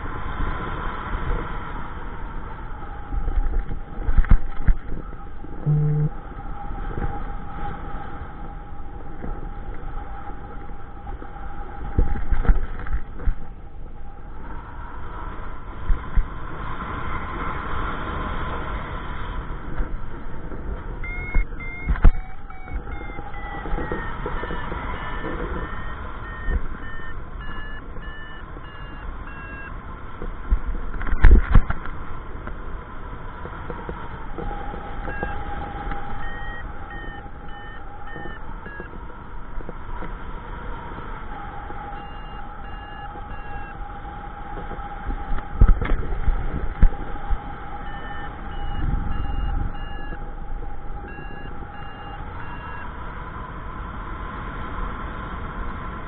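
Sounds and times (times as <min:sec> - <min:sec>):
wind buffeting thumps: 0:00.0 - 0:53.4
wind rushing over microphone: 0:00.0 - 0:56.0
variometer beeping: 0:03.1 - 0:06.2, 0:20.5 - 0:31.8, 0:33.6 - 0:40.1, 0:41.3 - 0:53.0.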